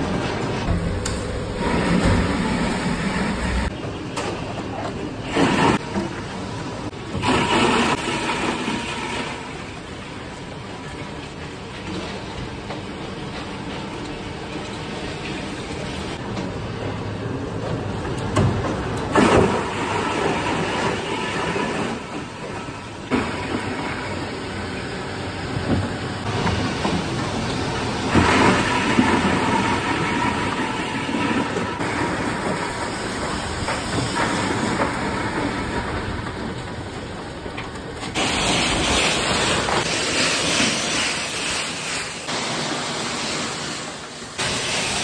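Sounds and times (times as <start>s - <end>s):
ice crusher machinery running: 0.0s - 3.8s, 5.3s - 9.8s, 26.2s - 36.2s
hiss of crushed ice blown: 38.2s - 45.0s.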